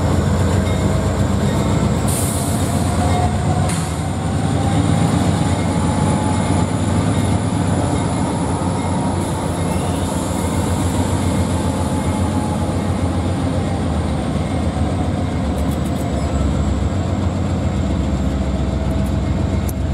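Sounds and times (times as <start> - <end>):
freight train rumbling past: 0.0 - 19.9
high-pitched squeal: 1.4 - 14.8.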